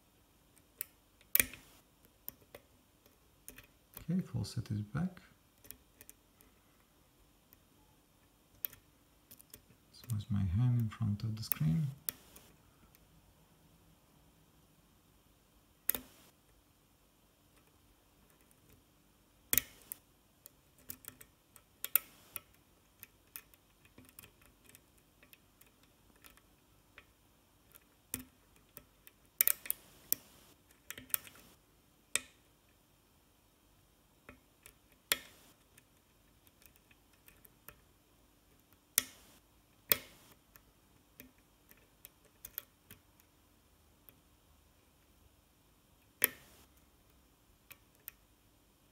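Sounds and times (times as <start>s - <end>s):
lock pick clicking pins: 0.6s - 4.1s, 8.5s - 10.2s, 19.5s - 31.5s, 34.3s - 37.8s, 38.5s - 43.3s, 46.0s - 46.7s.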